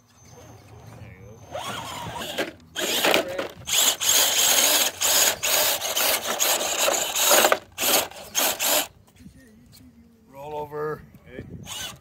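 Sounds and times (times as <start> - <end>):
electric motor whining in bursts: 1.2 - 8.9, 11.6 - 12.0.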